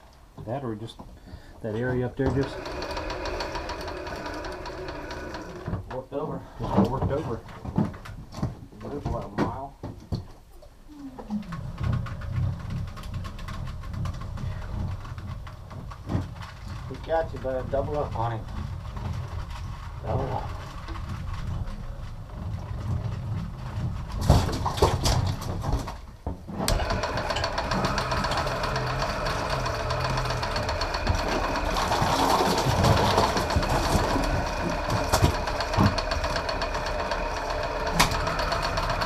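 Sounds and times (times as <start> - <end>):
low boat engine rumble: 0.0 - 9.8, 10.8 - 39.0
electric fishing reel motor: 2.3 - 5.8, 26.7 - 39.0.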